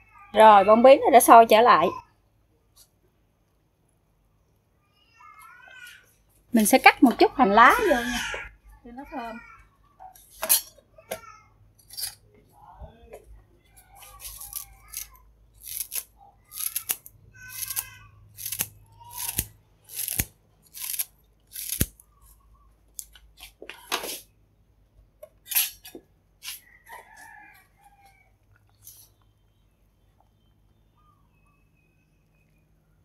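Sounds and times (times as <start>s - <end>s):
scissors snipping green onions: 14.1s - 22.0s.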